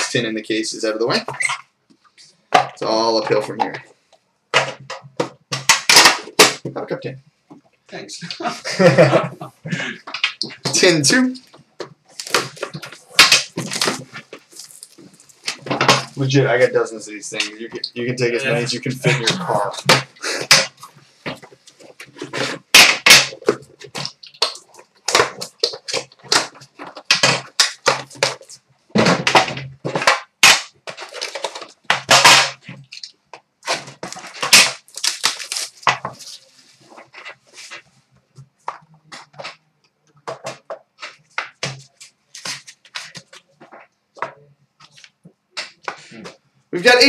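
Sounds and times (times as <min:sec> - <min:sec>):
cardboard and wrap crackling: 0:08.3 - 0:16.4, 0:29.9 - 0:37.9.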